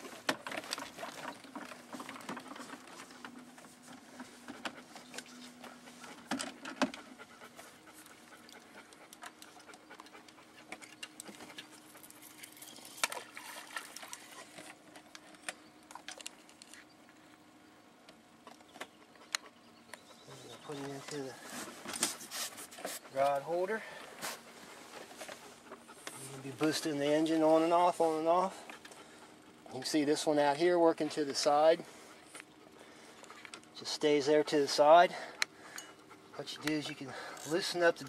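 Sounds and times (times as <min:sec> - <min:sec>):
fishing reel clicks and rustles: 0:36.6 - 0:38.0.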